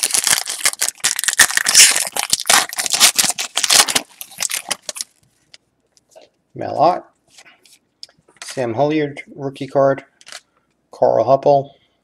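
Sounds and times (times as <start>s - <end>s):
foil wrapper tearing and crinkling: 0.0s - 5.2s.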